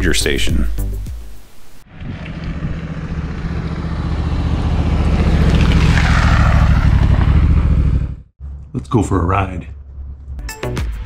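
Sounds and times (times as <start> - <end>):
motorcycle passing by: 1.8 - 8.3.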